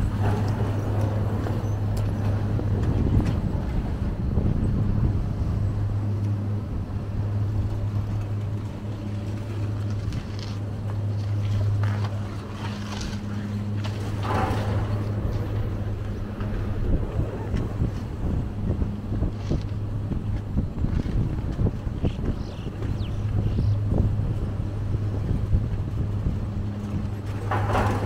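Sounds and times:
gondola lift humming: 0.0s - 28.0s
clacks and rattles: 11.3s - 16.8s, 26.8s - 28.0s.

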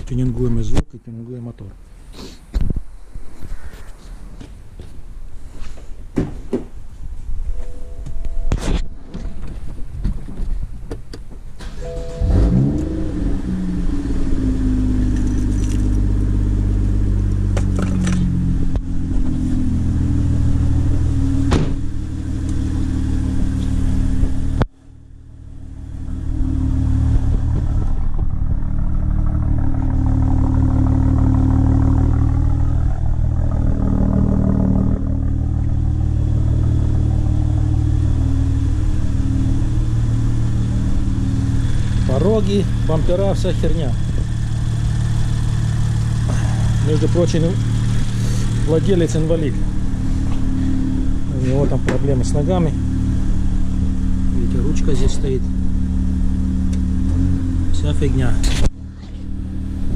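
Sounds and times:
car engine starting and idling: 7.4s - 59.9s.

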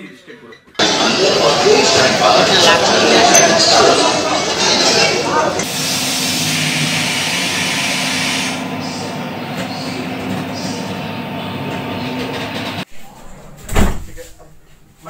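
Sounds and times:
diesel generator drone: 0.8s - 12.9s
steady hum: 0.8s - 13.2s
high hiss: 5.7s - 8.9s.

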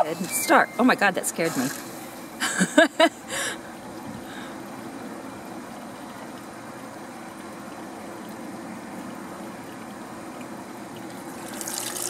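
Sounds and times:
water filling washing machine: 0.0s - 12.0s.

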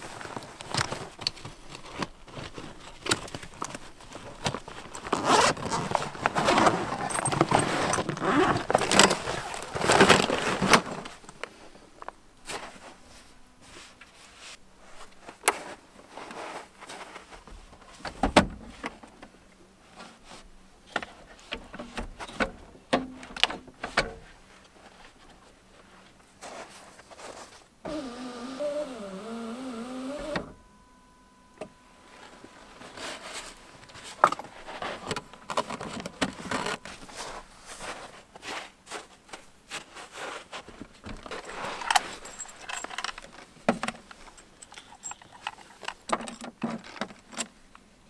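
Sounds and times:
zipper pulls: 5.0s - 10.9s, 27.9s - 30.4s.

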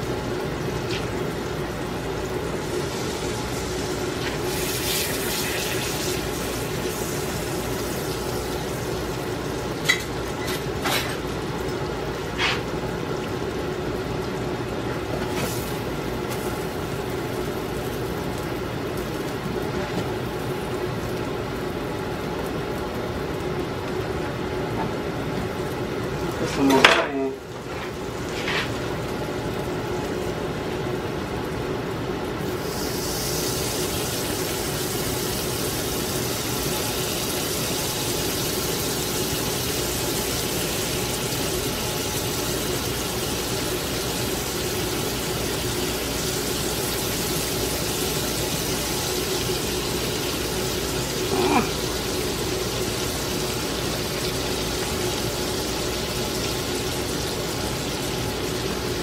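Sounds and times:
pancakes sizzling in frying pan: 0.0s - 14.3s, 15.0s - 30.7s, 31.4s - 59.0s.

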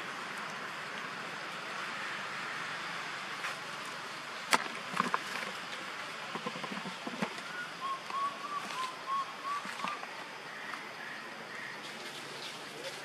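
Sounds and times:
forest ambience: 0.0s - 13.0s
animal whistled calls: 7.4s - 10.0s.

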